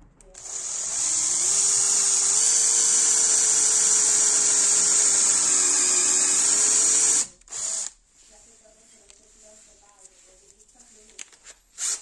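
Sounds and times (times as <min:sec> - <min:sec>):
drill bit screeching through metal: 0:00.4 - 0:07.9
electric drill motor whine: 0:00.4 - 0:08.0, 0:11.8 - 0:12.0.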